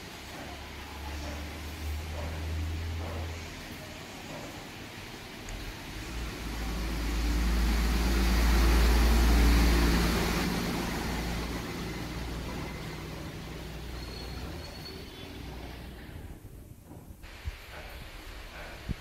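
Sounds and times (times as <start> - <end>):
motor vehicle passing by: 5.4 - 16.4.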